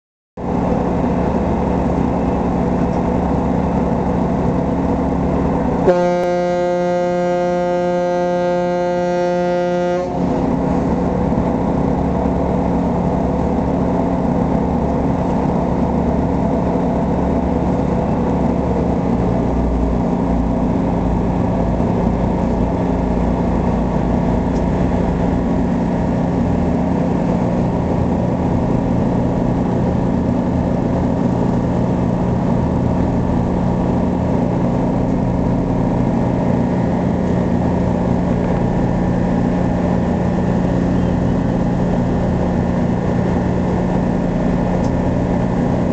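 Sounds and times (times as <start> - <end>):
ship engines droning: 0.4 - 45.9
ferry horn long blast: 5.2 - 13.2.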